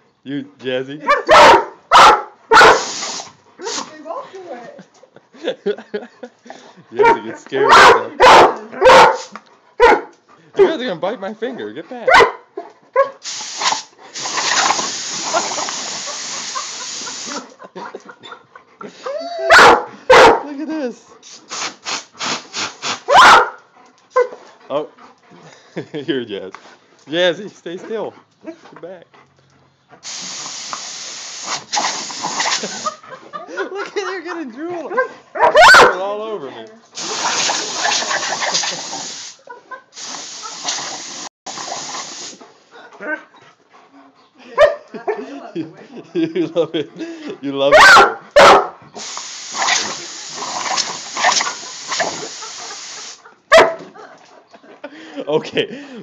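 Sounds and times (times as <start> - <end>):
compressed air hissing from nozzle: 2.7 - 3.9, 9.2 - 9.4, 13.2 - 17.5, 21.2 - 23.1, 30.0 - 33.0, 37.0 - 39.4, 40.0 - 42.4, 49.0 - 53.2.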